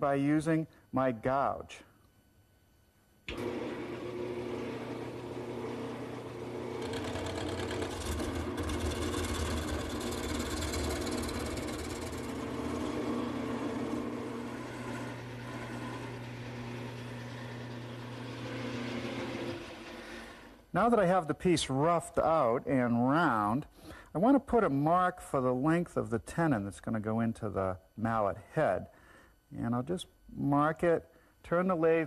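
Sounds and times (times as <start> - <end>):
gouge cutting wood: 3.3 - 20.2
wood lathe humming: 3.3 - 20.7.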